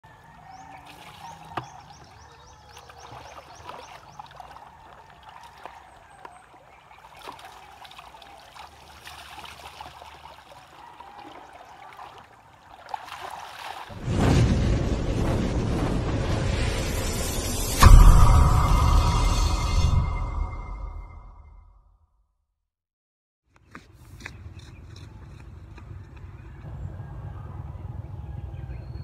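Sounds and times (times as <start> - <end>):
water splashing and pouring: 0.7 - 21.0
water trickling: 0.9 - 13.9
loud rushing sound effect: 14.0 - 21.7.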